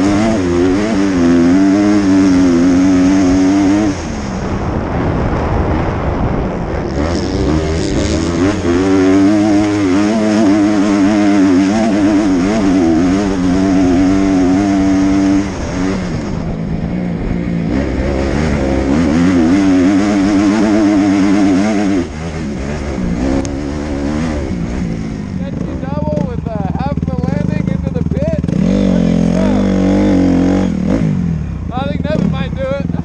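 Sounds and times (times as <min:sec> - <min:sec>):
dirt bike engine revving: 0:00.0 - 0:33.0
wind rumble: 0:00.0 - 0:33.0.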